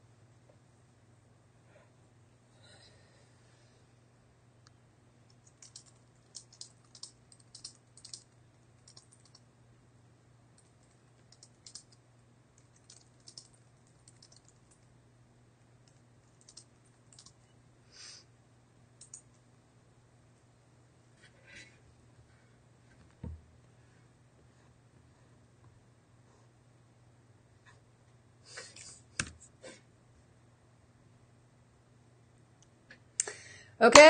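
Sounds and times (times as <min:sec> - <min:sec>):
low electrical hum: 0:00.0 - 0:34.0
typing on computer keyboard: 0:05.3 - 0:09.4, 0:10.6 - 0:12.0, 0:12.6 - 0:14.9, 0:15.8 - 0:17.4, 0:19.0 - 0:19.3.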